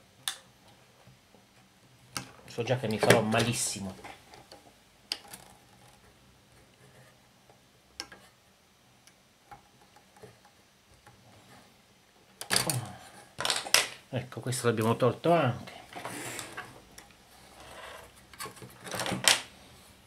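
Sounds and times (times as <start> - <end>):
man talking: 2.5 - 4.0, 14.1 - 15.9.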